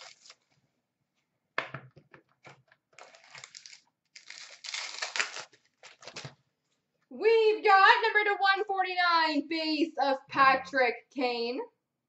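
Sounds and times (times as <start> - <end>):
plastic wrapping crinkling and tearing: 0.0 - 0.6, 2.9 - 6.4.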